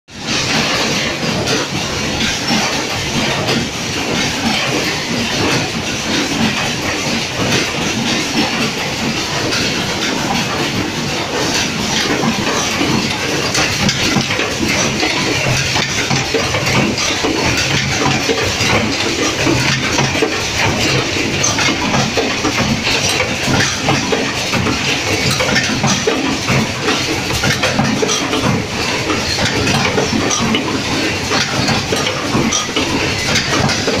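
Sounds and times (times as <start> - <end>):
machines clattering: 0.1 - 34.0.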